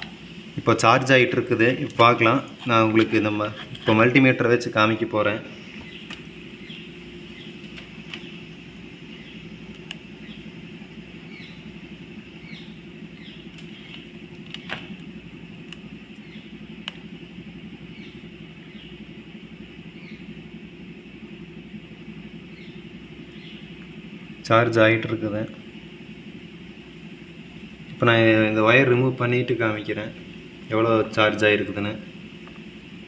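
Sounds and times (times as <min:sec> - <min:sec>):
low background hum: 0:00.0 - 0:33.0
wire leads clicking: 0:01.6 - 0:04.2, 0:05.8 - 0:11.0, 0:12.5 - 0:17.2.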